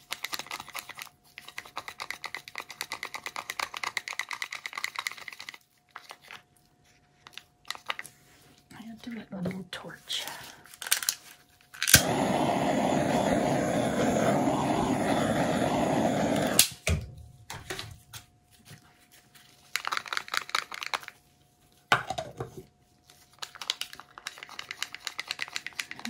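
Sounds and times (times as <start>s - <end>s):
torch flame hissing: 11.9s - 16.8s
torch switch click: 11.9s - 16.8s.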